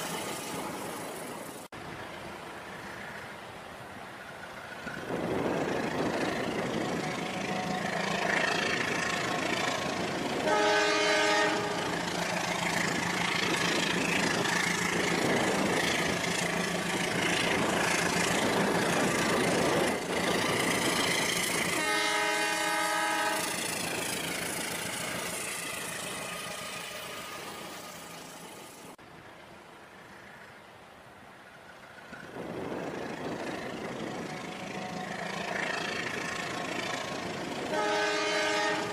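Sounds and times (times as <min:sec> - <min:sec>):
toy train horn: 0:10.4 - 0:12.0, 0:21.7 - 0:23.5, 0:37.7 - 0:38.9.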